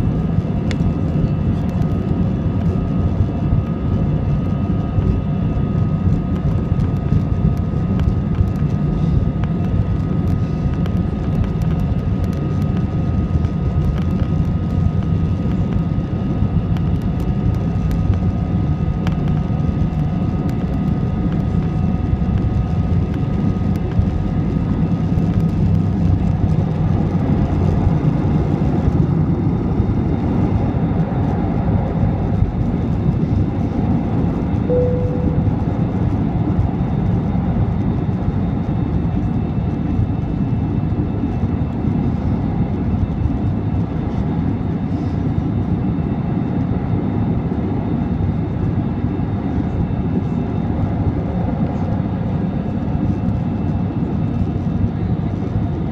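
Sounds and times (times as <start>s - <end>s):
short cabin tone: 34.7s - 36.0s.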